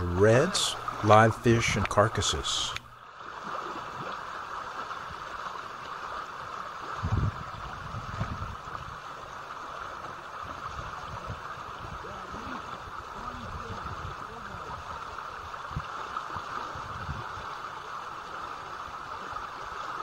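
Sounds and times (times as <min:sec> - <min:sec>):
water rushing over stones: 0:00.0 - 0:20.0
wind rumble on microphone: 0:06.8 - 0:09.2, 0:10.3 - 0:17.6.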